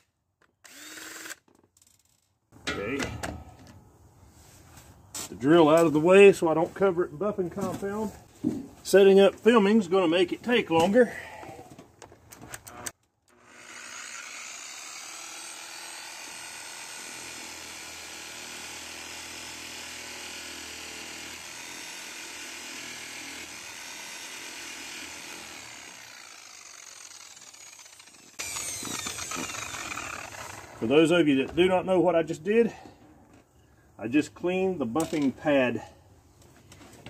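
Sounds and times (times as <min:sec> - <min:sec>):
power buffer whirring: 0:00.6 - 0:01.4, 0:25.6 - 0:30.8.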